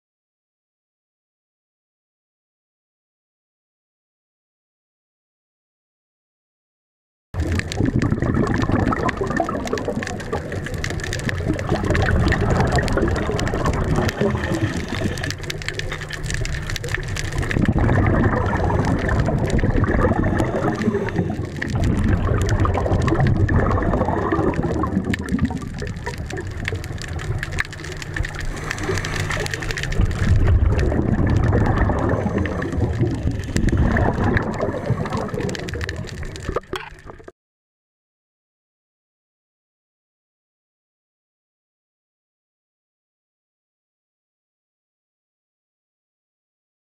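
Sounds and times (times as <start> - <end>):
regulator bubbles gurgling underwater: 7.4 - 37.3.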